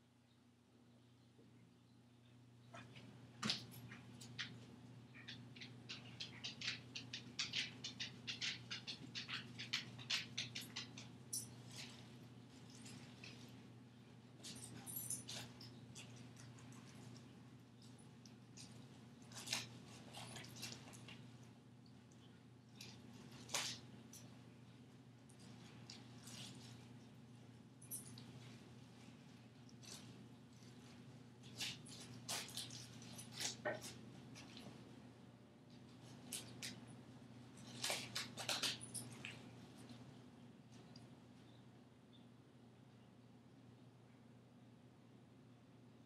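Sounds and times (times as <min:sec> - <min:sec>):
low steady hum: 0:00.0 - 0:46.0
dog rustling and chewing: 0:02.8 - 0:35.0, 0:35.7 - 0:41.0
dog claws clicking: 0:05.2 - 0:11.9.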